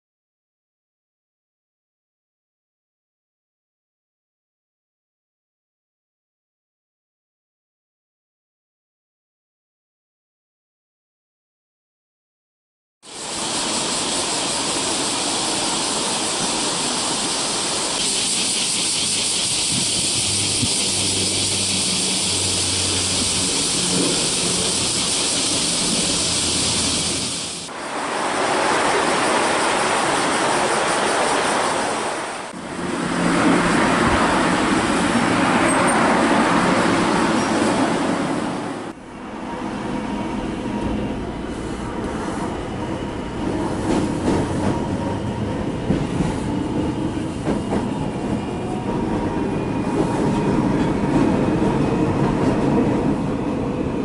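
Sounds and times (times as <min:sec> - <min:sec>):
train running on track: 0:13.0 - 0:54.0
passing traffic: 0:18.0 - 0:30.2, 0:32.0 - 0:42.1.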